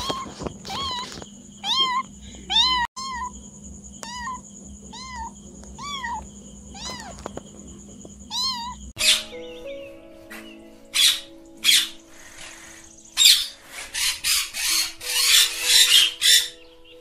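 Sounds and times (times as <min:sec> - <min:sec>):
cat meowing: 0:00.0 - 0:03.4, 0:04.0 - 0:07.3, 0:08.3 - 0:08.9.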